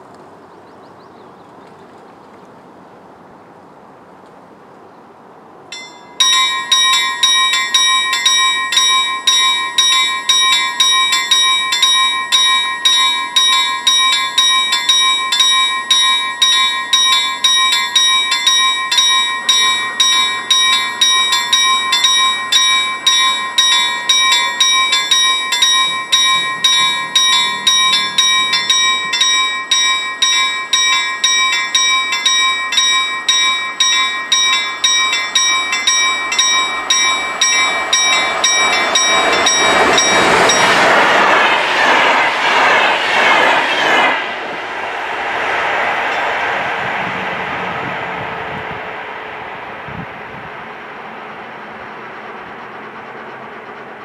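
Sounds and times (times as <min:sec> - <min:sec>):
level crossing warning bell: 0:05.7 - 0:42.2, 0:50.7 - 0:54.0.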